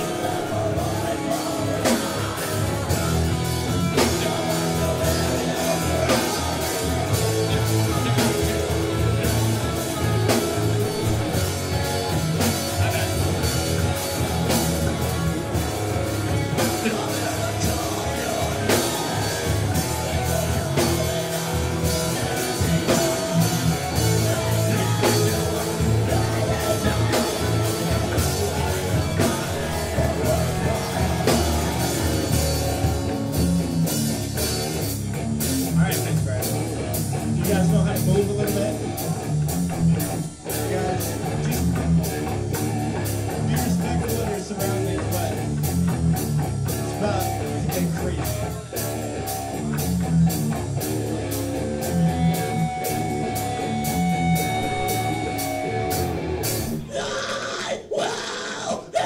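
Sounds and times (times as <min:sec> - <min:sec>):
metal band playing live: 0:00.0 - 0:59.0.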